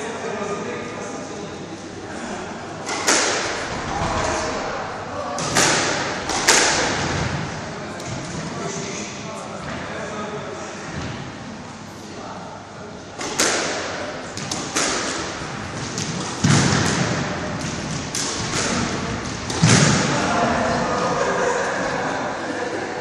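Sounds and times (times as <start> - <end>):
squash ball smacks: 2.8 - 3.6, 5.4 - 7.4, 13.2 - 20.1.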